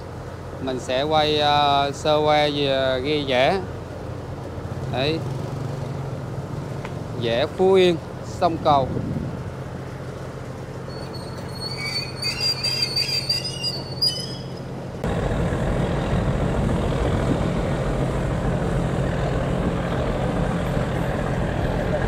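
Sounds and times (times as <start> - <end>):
loud even engine rumble: 0.0 - 22.0
diesel engine idling: 9.4 - 22.0
wavering high squeal: 10.9 - 14.8.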